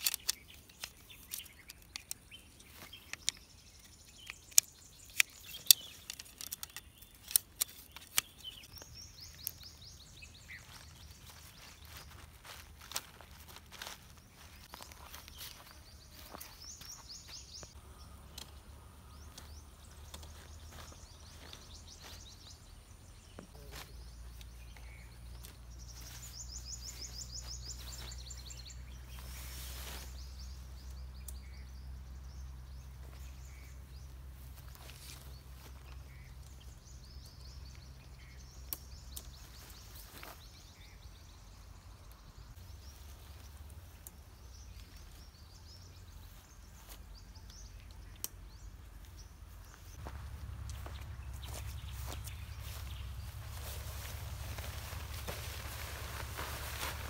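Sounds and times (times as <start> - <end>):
tent poles clicking: 0.0 - 16.6, 50.0 - 57.0
birds trilling: 0.0 - 41.5, 44.1 - 57.0
low steady hum: 8.6 - 39.8, 41.0 - 57.0
nylon fabric rustling: 52.7 - 57.0.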